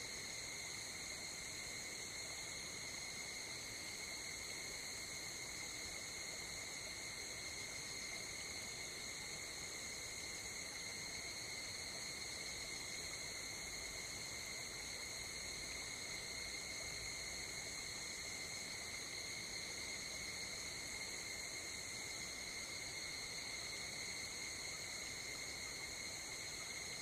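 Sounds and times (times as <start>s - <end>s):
night insects trilling: 0.0s - 27.0s
soft outdoor background noise: 0.0s - 27.0s.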